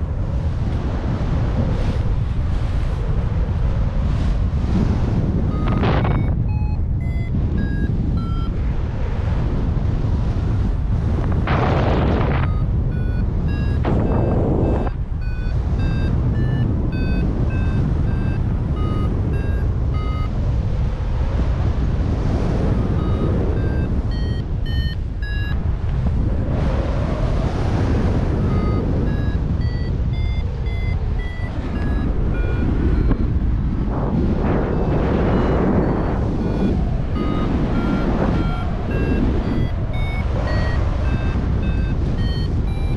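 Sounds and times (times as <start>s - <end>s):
wind rushing on microphone: 0.0s - 42.9s
variometer beeping: 5.2s - 8.8s, 12.1s - 20.7s, 22.4s - 25.8s, 27.8s - 42.9s.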